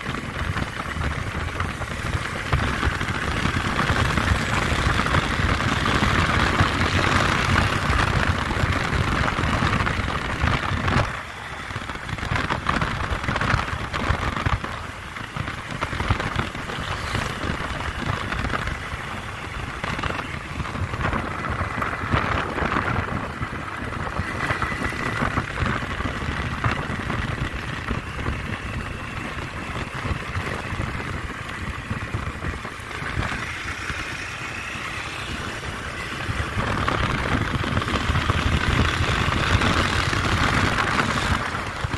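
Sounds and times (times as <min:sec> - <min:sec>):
motorcycle engine running: 0:00.0 - 0:41.9
wind rushing over microphone: 0:00.0 - 0:41.9.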